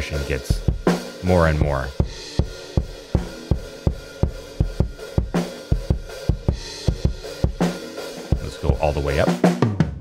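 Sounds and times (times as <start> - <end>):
snare and cymbal spill: 0.0 - 9.8
compressed kick drum beat: 0.0 - 10.0.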